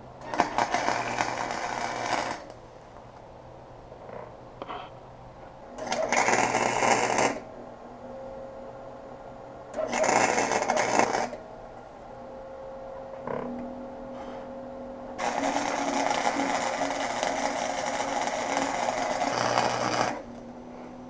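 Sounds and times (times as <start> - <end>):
arc welder crackling and buzzing: 0.0 - 3.2, 5.7 - 7.6, 9.7 - 11.4, 15.2 - 20.6
quiet hum: 0.0 - 21.0.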